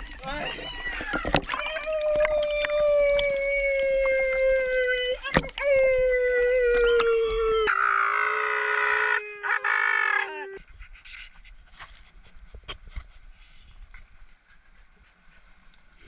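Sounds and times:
dog howling: 0.2s - 10.6s.

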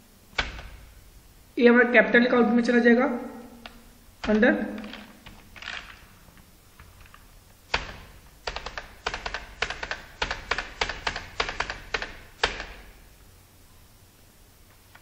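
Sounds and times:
keyboard keys clacking: 3.6s - 12.8s.

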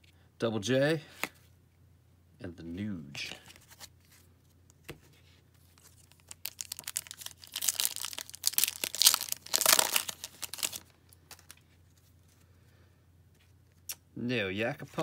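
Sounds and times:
wrapper tearing and crinkling: 5.8s - 11.6s.

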